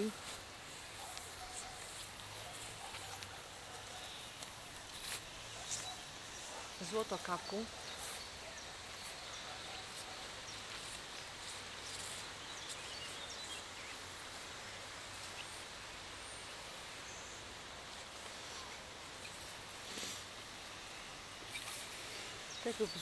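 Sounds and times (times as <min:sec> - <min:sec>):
low background hiss: 0:00.0 - 0:23.0
faint bird chirps: 0:21.3 - 0:23.0.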